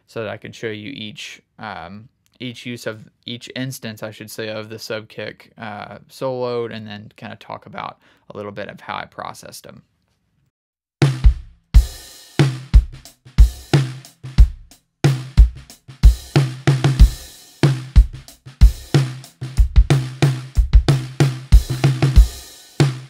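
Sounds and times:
deep kick drum thumps: 11.0 - 12.0, 12.6 - 23.0
drum kit playing a groove: 11.0 - 23.0.

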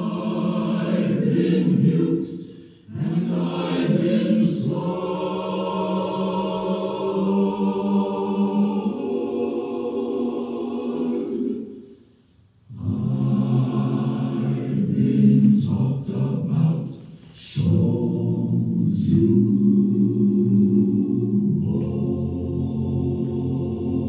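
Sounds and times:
choir singing in held chords: 0.0 - 24.0.

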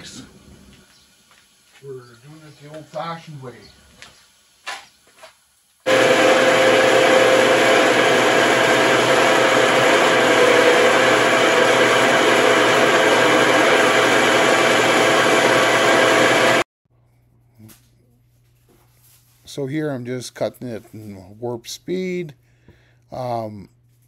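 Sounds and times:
band saw cutting metal: 5.9 - 16.6.

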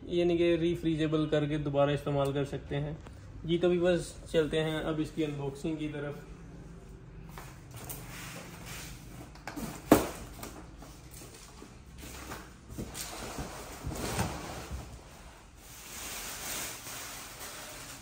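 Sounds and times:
plastic wrapping rustling: 9.6 - 18.0.

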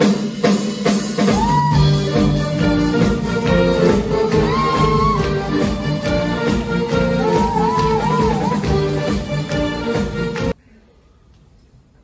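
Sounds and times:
drum kit: 0.0 - 10.6
piano: 0.0 - 10.6
saxophone ensemble playing: 1.9 - 10.6.

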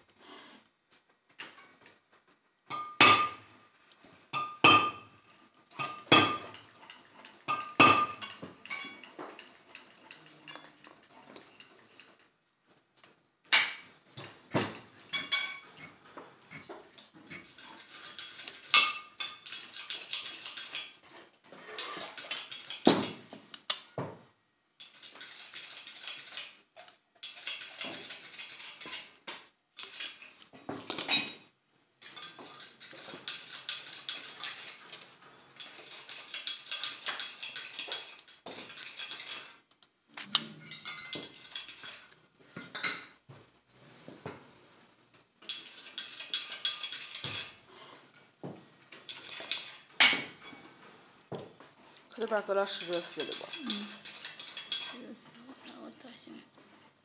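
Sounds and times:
metal clinking and clicking: 5.7 - 12.2, 48.9 - 50.7, 52.7 - 55.0
sharp metal clanks: 49.2 - 50.4.

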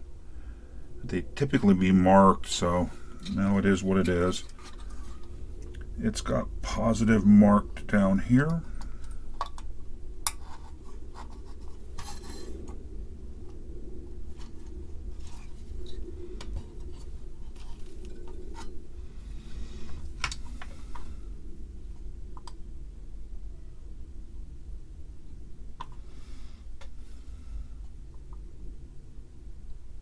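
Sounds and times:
low hum: 0.0 - 30.0
small clicks and scrapes: 3.2 - 5.9, 8.5 - 12.8, 14.3 - 18.8.

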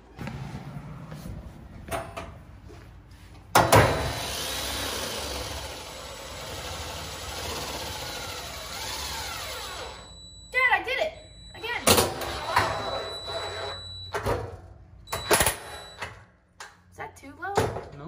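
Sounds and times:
cordless drill driving a screw: 4.2 - 10.0.

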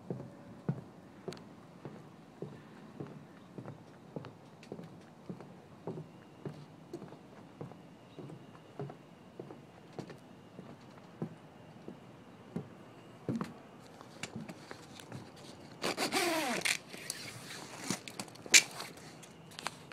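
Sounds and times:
footsteps on wooden dock: 0.0 - 15.5.

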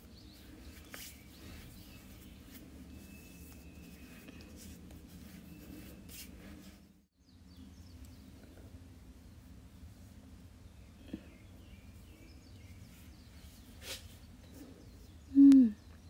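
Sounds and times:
low room hum: 0.0 - 16.0
hands rubbing together: 0.4 - 6.8.

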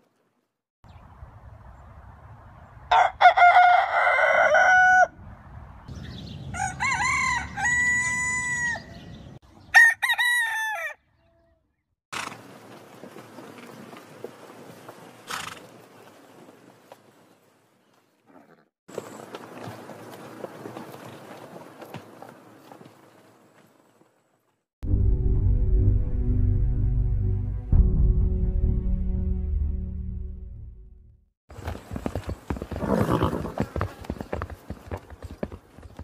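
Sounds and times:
rooster crowing: 2.9 - 5.2, 6.5 - 9.0, 9.7 - 11.0.

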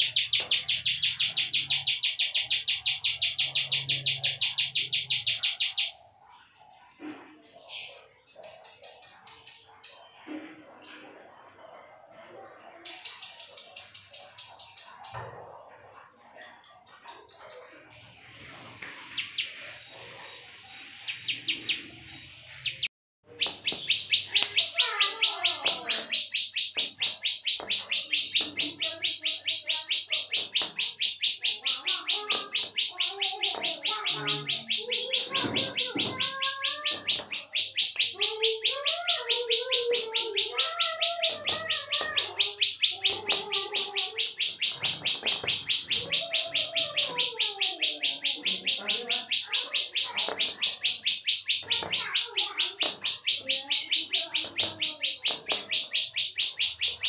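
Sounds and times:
bird warbling: 0.0 - 57.0
bird high clicking call: 22.6 - 57.0.

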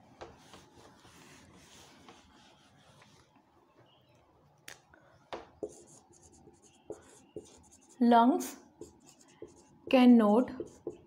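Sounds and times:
duster rubbing a whiteboard: 0.2 - 3.1, 10.6 - 11.0.

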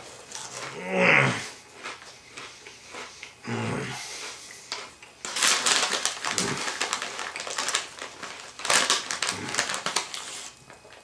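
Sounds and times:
plastic bag rustling: 5.2 - 11.0.

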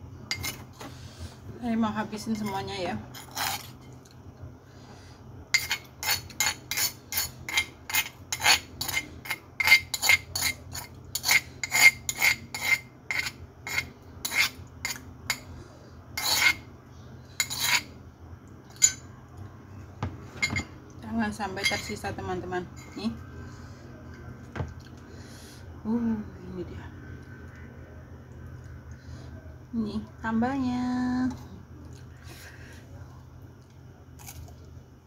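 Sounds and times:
metal spoon scraping stone mortar: 0.3 - 0.7, 2.3 - 3.9, 5.6 - 15.4, 16.2 - 16.6, 17.4 - 17.9.

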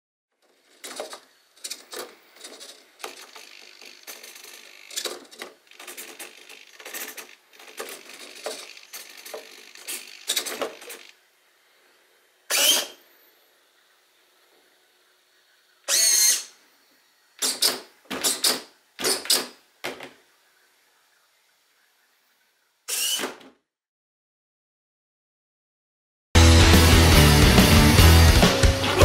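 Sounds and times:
servo suspension whirring and clattering: 0.4 - 20.7, 22.9 - 23.6.

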